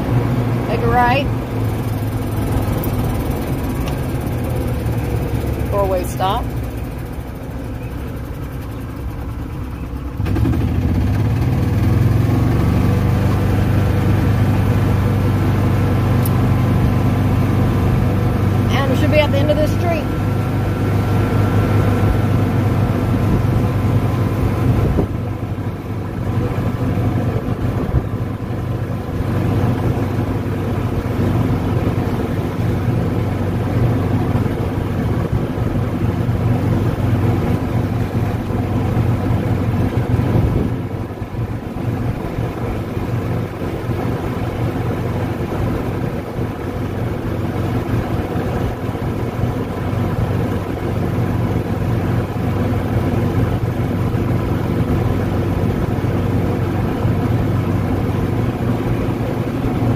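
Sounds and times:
golf cart humming: 0.0s - 59.9s.

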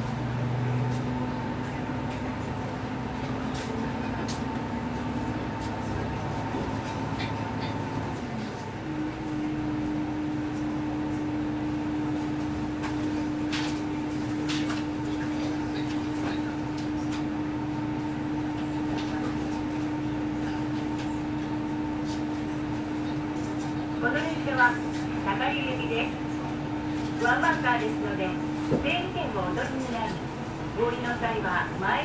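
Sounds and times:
diesel railcar engine hum: 0.0s - 32.0s.

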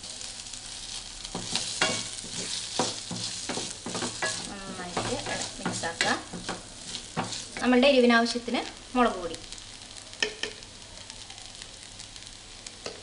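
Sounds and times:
onions sizzling in oil: 0.0s - 13.0s
wooden spatula scraping pan: 1.3s - 7.8s.

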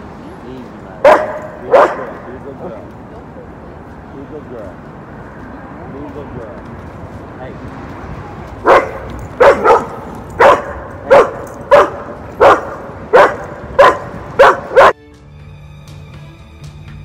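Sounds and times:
dog barking: 1.0s - 2.2s, 8.6s - 15.0s
background music: 13.1s - 17.0s.

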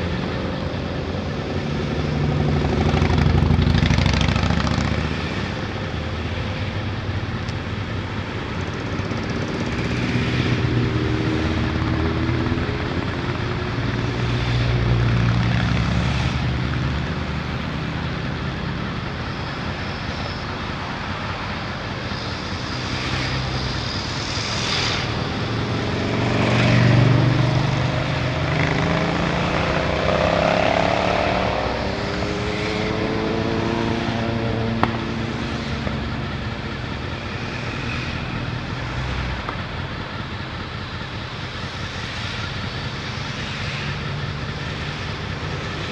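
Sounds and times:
vehicles passing: 0.0s - 45.9s
motorcycle engine idling: 38.2s - 45.9s.

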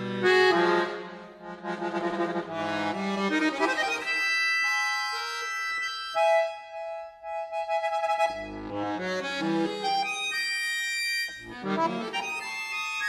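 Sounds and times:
button accordion playing: 0.0s - 13.0s.

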